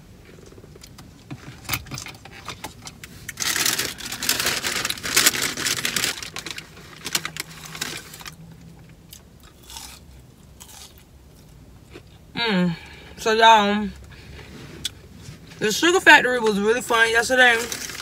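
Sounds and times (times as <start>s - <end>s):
paper bag rustling: 3.2s - 8.4s.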